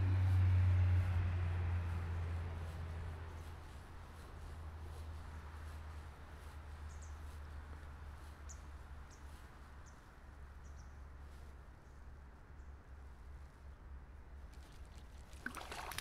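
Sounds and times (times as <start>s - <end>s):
low steady rumble: 0.0s - 16.0s
bird chirping: 10.6s - 11.1s.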